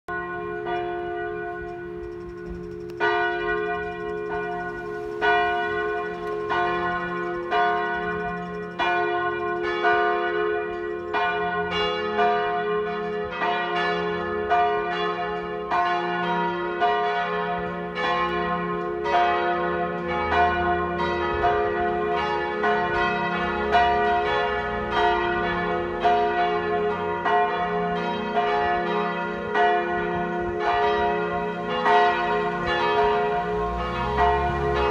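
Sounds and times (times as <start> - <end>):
church bells pealing: 0.1 - 34.9
continuous ringing hum: 1.8 - 3.0.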